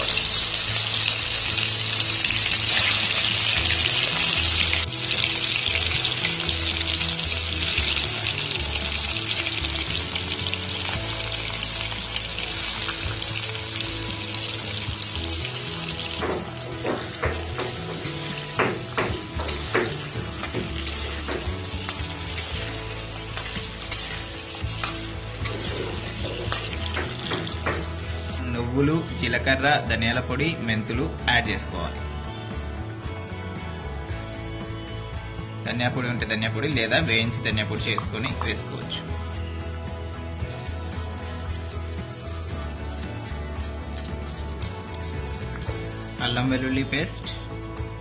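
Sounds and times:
gourds deep-frying in hot oil: 0.0s - 28.4s, 40.3s - 46.0s
spatula scraping and knocking pan: 16.1s - 28.3s.

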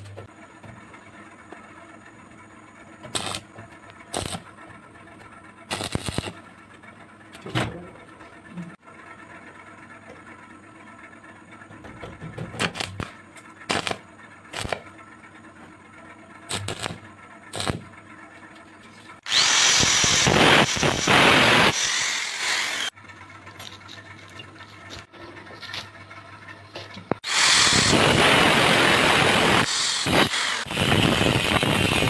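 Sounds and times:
arc welder bursts: 3.1s - 4.6s, 5.7s - 6.4s, 12.6s - 15.0s, 16.4s - 18.0s, 19.2s - 23.0s, 27.1s - 32.0s
angle grinder cutting steel: 3.2s - 3.4s, 5.7s - 6.4s, 16.5s - 17.8s, 19.2s - 23.0s, 27.2s - 32.0s.

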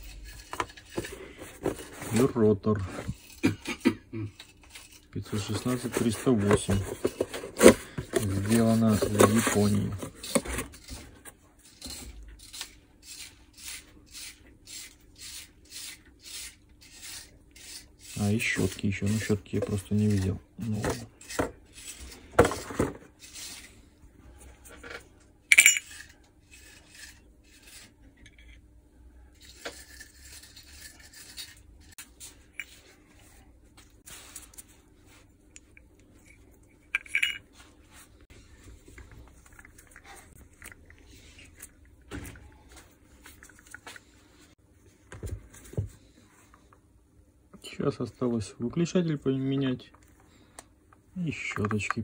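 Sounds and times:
metal parts and tools clinking: 25.5s - 26.2s, 36.2s - 37.5s.

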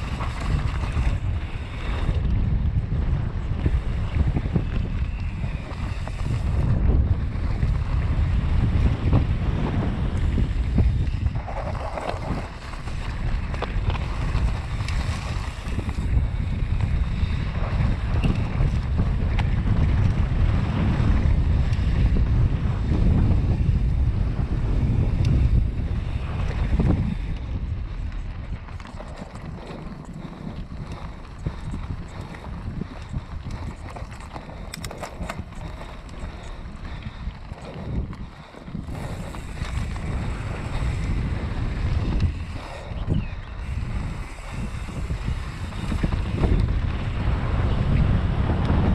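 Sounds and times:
bike tyres on dirt: 0.0s - 48.9s
wind buffeting microphone: 0.0s - 48.9s
sharp ticks: 27.3s - 40.2s.

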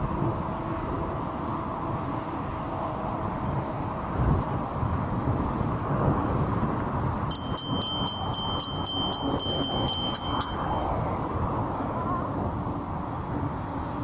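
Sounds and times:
low rumble of wind and riding: 3.1s - 14.0s
bicycle bell ringing rapidly: 7.3s - 11.0s.

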